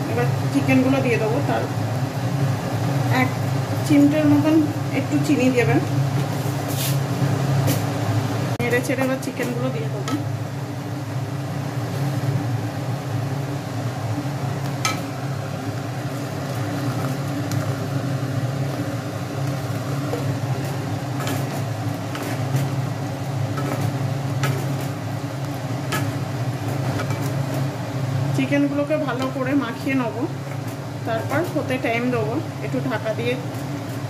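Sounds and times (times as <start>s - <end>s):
low machine hum: 0.0s - 34.0s
sauce simmering: 10.2s - 28.4s.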